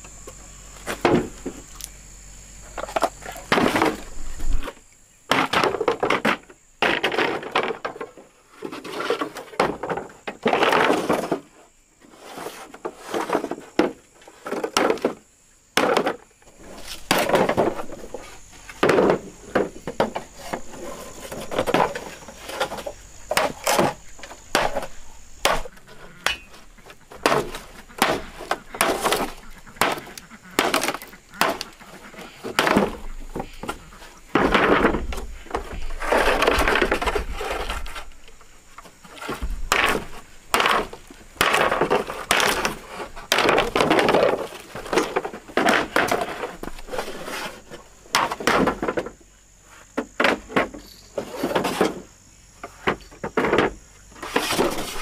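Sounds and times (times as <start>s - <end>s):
sharp knocks and cracks: 0.8s - 1.9s, 2.8s - 8.2s, 15.8s - 16.2s, 17.0s - 18.0s, 18.7s - 20.7s, 21.3s - 38.1s, 38.8s - 46.9s, 48.1s - 49.2s
scraping or rustling noise: 2.8s - 4.8s, 5.4s - 15.2s, 15.9s - 50.0s, 50.8s - 55.0s.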